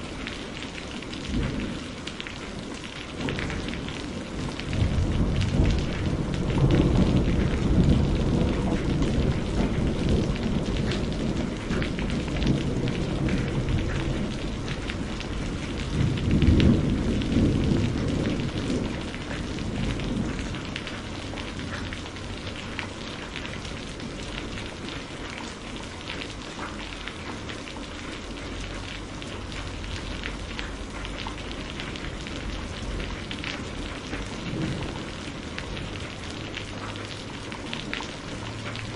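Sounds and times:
thunder rumbling: 0:00.0 - 0:26.0, 0:28.1 - 0:38.9
steady rain: 0:00.0 - 0:38.9.

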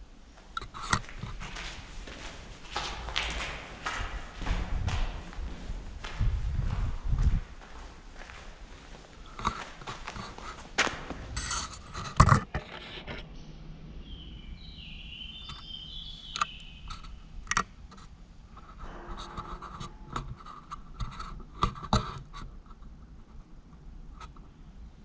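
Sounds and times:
scrapes and knocks: 0:00.6 - 0:07.4, 0:09.2 - 0:13.3, 0:17.9 - 0:22.8
shoes scuffing on concrete: 0:00.8 - 0:11.8.

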